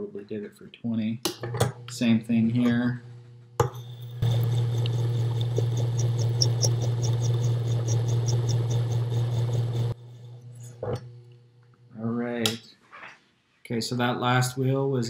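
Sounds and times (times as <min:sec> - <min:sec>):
faint motor hum: 0:01.5 - 0:12.6
grinding wheel hum with ticks: 0:03.6 - 0:11.9.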